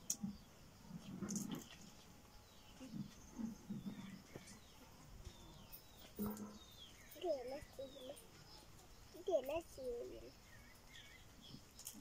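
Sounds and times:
faint birds chirping: 0:00.0 - 0:12.0.

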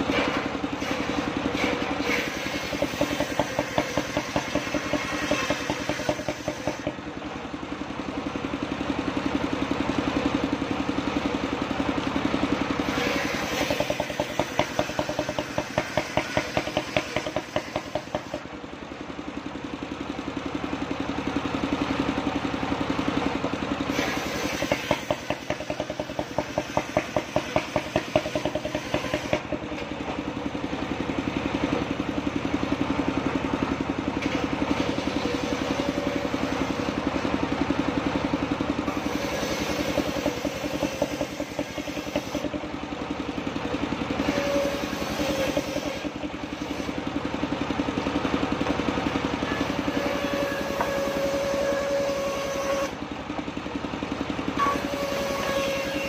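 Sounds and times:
saw blade cutting log: 0:00.0 - 0:07.2, 0:12.8 - 0:18.6, 0:23.9 - 0:30.4, 0:34.2 - 0:37.1, 0:38.9 - 0:42.7, 0:44.1 - 0:47.1, 0:49.4 - 0:53.0, 0:54.6 - 0:56.0
engine running with pulsing beat: 0:00.0 - 0:56.0.

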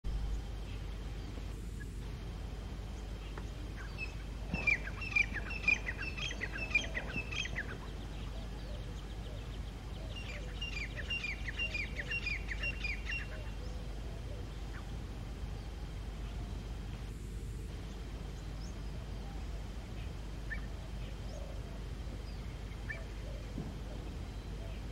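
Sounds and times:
francolin calling: 0:00.1 - 0:17.2, 0:17.8 - 0:24.9.

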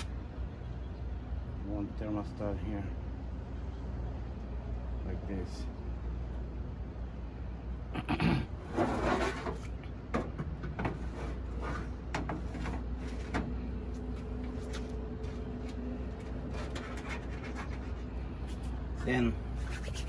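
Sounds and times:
wire racks scraping into metal cabinet: 0:08.6 - 0:09.7.

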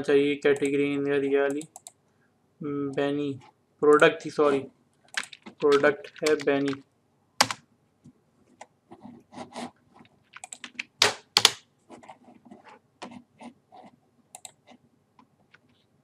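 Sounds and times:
computer keyboard clicks: 0:05.1 - 0:06.8, 0:10.3 - 0:11.6, 0:14.4 - 0:14.6.

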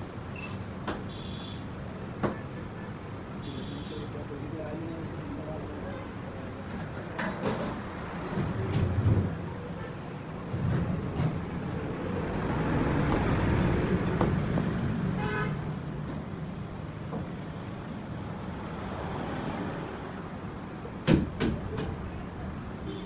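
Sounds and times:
road traffic noise: 0:00.0 - 0:23.0
vehicle horn toot: 0:01.1 - 0:01.6.

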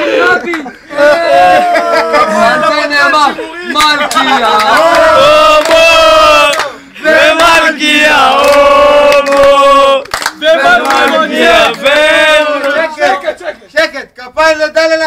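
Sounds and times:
voices chanting together: 0:04.0 - 0:13.3.

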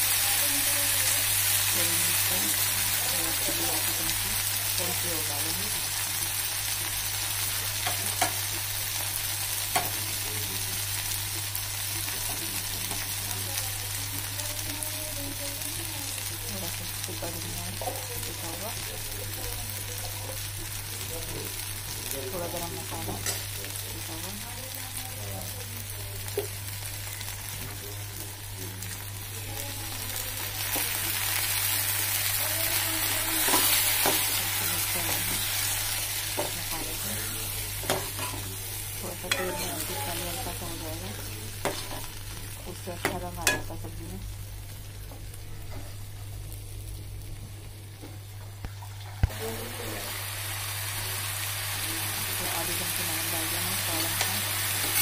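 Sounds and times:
food sizzling in oil: 0:00.0 - 0:55.0
spoon scraping a pan: 0:33.4 - 0:36.6, 0:37.8 - 0:38.5, 0:39.2 - 0:42.1.

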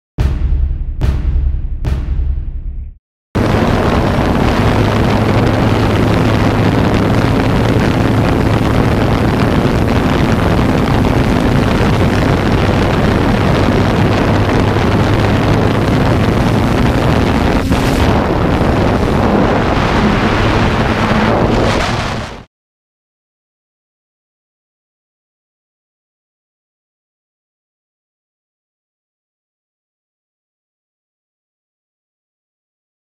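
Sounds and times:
drone propellers humming: 0:03.4 - 0:22.4
wind on microphone: 0:03.4 - 0:22.5.

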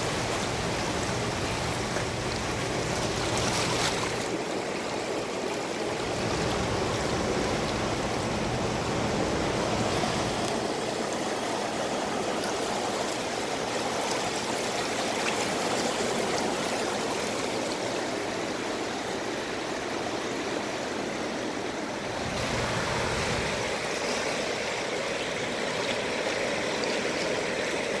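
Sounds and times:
river rushing over rocks: 0:00.0 - 0:28.0.

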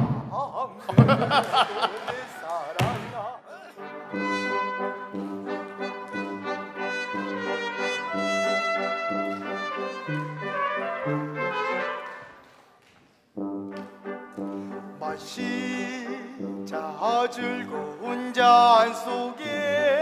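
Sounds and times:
brass quintet playing chords: 0:03.7 - 0:12.5, 0:13.4 - 0:18.1.

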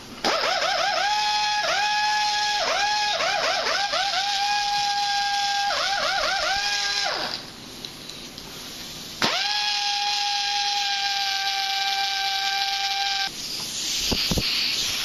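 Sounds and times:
pneumatic tool whining: 0:00.0 - 0:07.4, 0:09.2 - 0:15.0
air hissing: 0:13.0 - 0:15.0.

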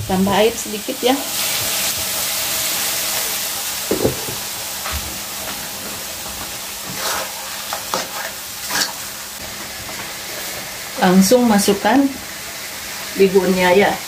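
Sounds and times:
water sizzling in a hot wok: 0:00.0 - 0:14.0
spatula scraping a wok: 0:06.3 - 0:09.2.

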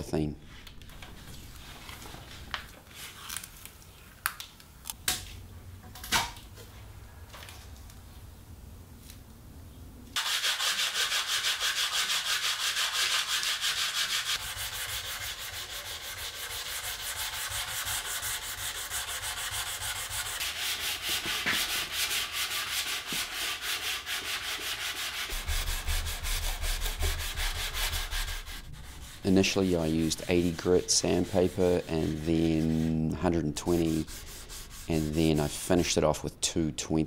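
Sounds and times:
sandpaper rubbing on wood: 0:10.2 - 0:36.0.

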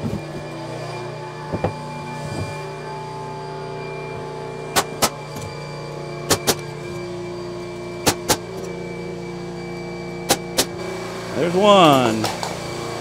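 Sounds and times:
steady machine hum: 0:00.0 - 0:13.0
pneumatic nailer shots: 0:04.7 - 0:05.5, 0:06.2 - 0:06.8, 0:08.0 - 0:08.7, 0:10.2 - 0:10.8.

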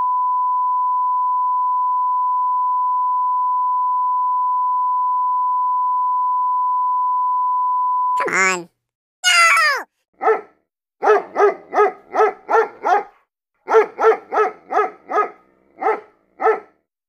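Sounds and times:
short falling cry: 0:09.2 - 0:09.9
dog barking: 0:10.2 - 0:16.8.

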